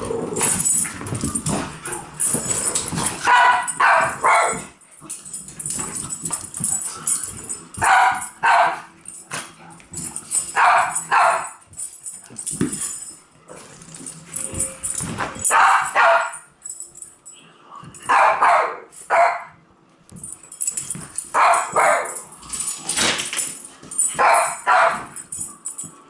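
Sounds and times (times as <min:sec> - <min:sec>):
dog barking: 0:03.3 - 0:04.7, 0:07.8 - 0:08.9, 0:10.6 - 0:11.6, 0:15.5 - 0:16.4, 0:18.1 - 0:19.5, 0:21.4 - 0:22.2, 0:24.2 - 0:25.1.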